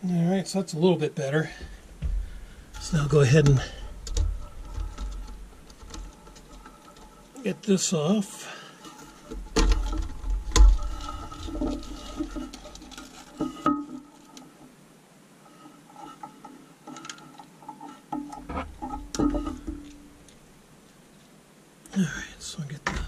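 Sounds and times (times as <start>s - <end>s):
plastic parts clicking and knocking: 1.6s - 7.4s, 8.8s - 14.5s, 16.9s - 20.4s, 22.7s - 23.0s.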